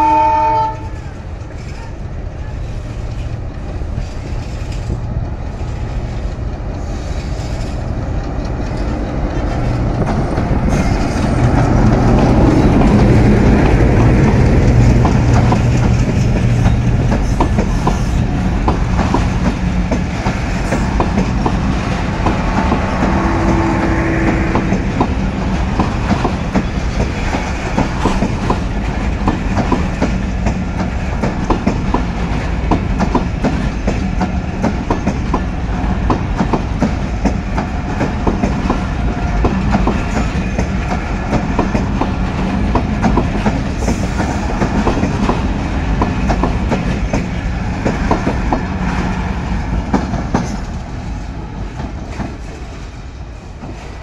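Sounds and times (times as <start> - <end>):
diesel locomotive engine: 0.0 - 54.0
train wheels clacking over rail joints: 2.6 - 53.0.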